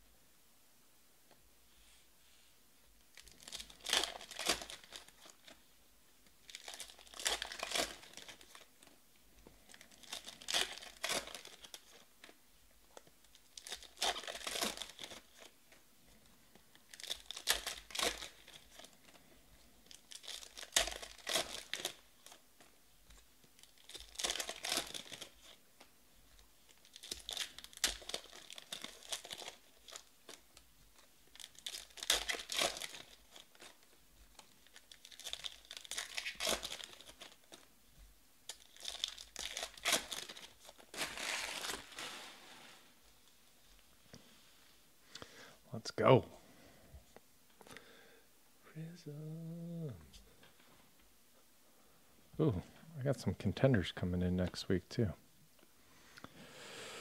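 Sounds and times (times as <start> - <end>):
crinkly wrappers tearing: 3.1 - 5.6, 6.3 - 8.9, 9.6 - 15.6, 16.2 - 25.7, 26.3 - 37.7, 38.4 - 43.0.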